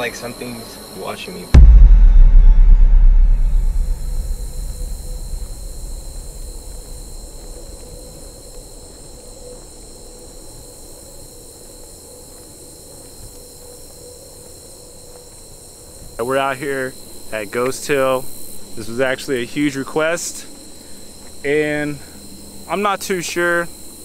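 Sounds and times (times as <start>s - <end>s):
low rumble: 1.6s - 8.6s
night insects shrilling: 4.1s - 24.0s.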